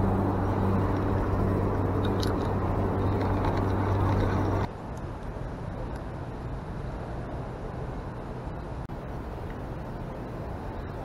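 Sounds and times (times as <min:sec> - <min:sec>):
motorboat engine humming: 0:00.0 - 0:04.7
outdoor noise: 0:00.0 - 0:11.0.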